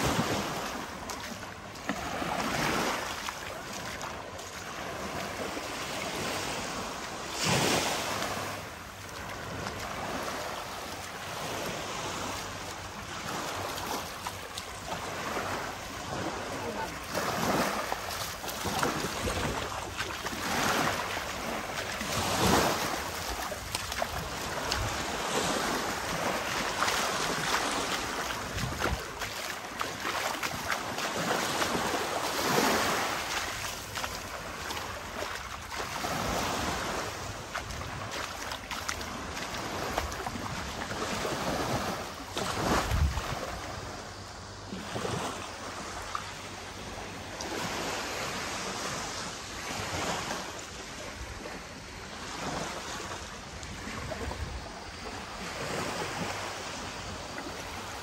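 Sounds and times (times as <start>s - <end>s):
sea waves washing ashore: 0.0s - 58.0s.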